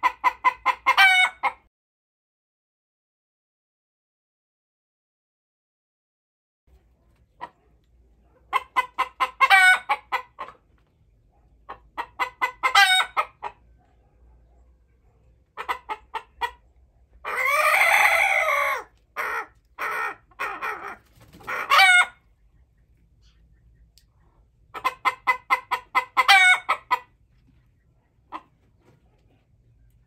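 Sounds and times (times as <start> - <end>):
long held chicken call: 0.0 - 1.6, 8.8 - 10.2, 12.3 - 13.5, 17.2 - 22.2, 24.8 - 27.1
chickens clucking and cackling: 0.0 - 1.7, 6.7 - 30.0.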